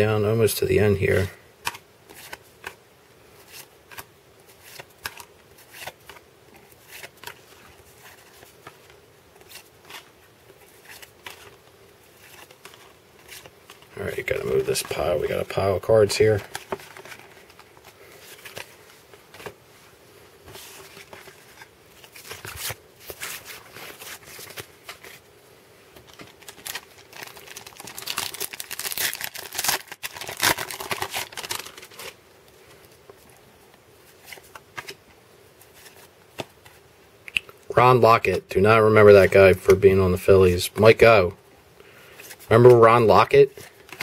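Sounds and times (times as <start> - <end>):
cards rustling: 1.0 - 25.3, 25.9 - 33.4, 34.0 - 35.0, 35.6 - 36.9, 42.1 - 44.0
wrapper crinkling: 26.0 - 32.2.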